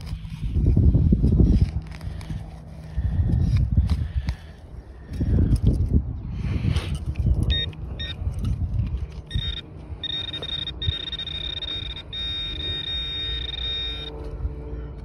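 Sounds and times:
pinpointer short beeps: 7.3s - 8.2s, 9.3s - 14.2s
pinpointer buzzing: 7.4s - 15.0s.

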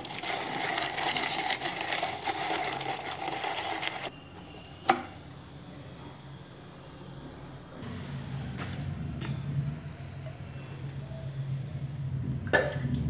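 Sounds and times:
food chopper rattling: 0.0s - 4.1s.

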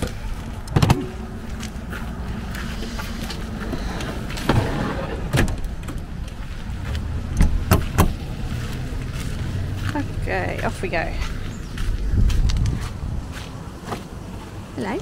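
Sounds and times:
drawers clunking shut: 3.7s - 6.0s.

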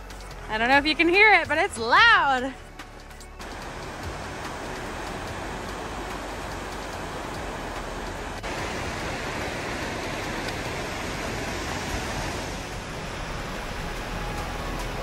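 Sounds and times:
creek running over rocks: 0.0s - 15.0s
waterfall rushing: 3.4s - 15.0s.

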